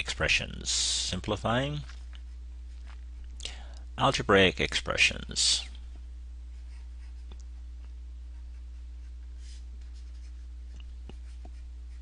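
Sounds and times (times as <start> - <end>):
stylus scratching on tablet: 11.1 - 12.0.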